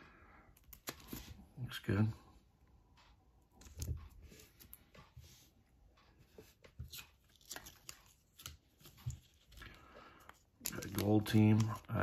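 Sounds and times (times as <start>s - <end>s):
cards and plastic sleeves rustling: 0.6s - 2.1s, 6.3s - 12.0s.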